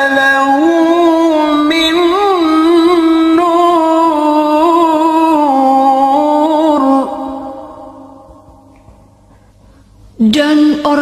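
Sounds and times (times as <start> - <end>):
man chanting melodically: 0.0 - 8.6.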